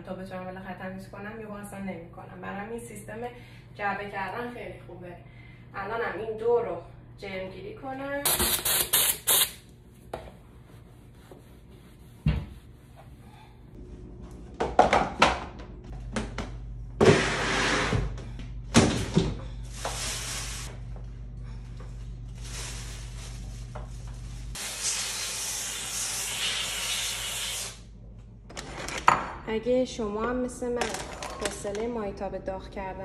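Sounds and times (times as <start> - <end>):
low steady hum: 18.0 - 24.6, 27.8 - 33.0
steam cleaner hissing: 19.7 - 20.7, 24.6 - 27.8.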